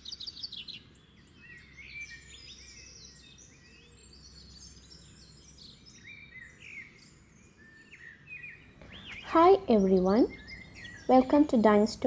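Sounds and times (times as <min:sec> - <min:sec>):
birds chirping and twittering: 0:00.0 - 0:12.0.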